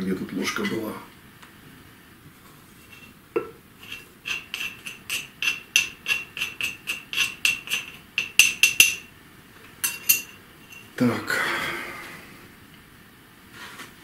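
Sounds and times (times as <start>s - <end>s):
ceramic mortar knocking on glass jar: 3.4s - 9.1s, 9.8s - 10.8s.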